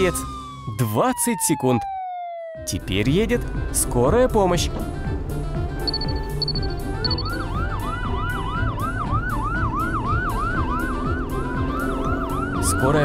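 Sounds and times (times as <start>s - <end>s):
cartoon ambulance siren: 0.0s - 2.9s, 5.9s - 13.0s
short high beep: 5.9s - 7.4s.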